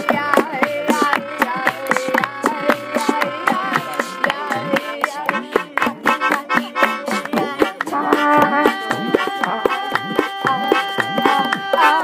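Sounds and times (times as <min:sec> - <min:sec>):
clapping: 0:00.0 - 0:12.0
hand drums: 0:00.0 - 0:12.0
wavering melody line: 0:00.7 - 0:05.8.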